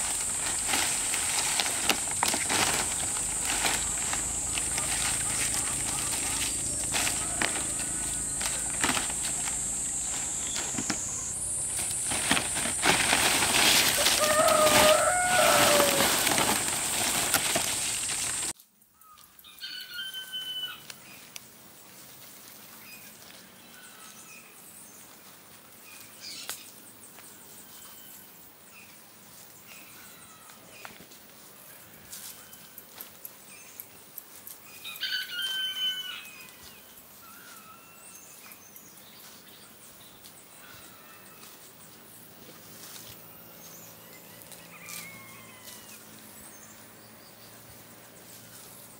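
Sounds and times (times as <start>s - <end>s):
palm fronds rustling: 0.0s - 18.6s, 34.3s - 48.9s
rooster crowing: 5.6s - 9.3s, 13.8s - 16.9s, 34.8s - 36.7s, 43.9s - 46.2s.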